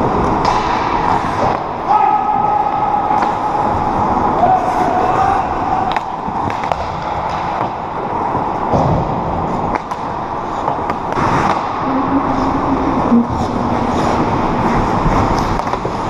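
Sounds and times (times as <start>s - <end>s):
skates scraping on ice: 0.0s - 1.7s, 2.7s - 16.0s
hockey sticks and puck clicking: 0.0s - 1.8s, 2.6s - 4.4s, 5.8s - 11.8s, 13.4s - 16.0s.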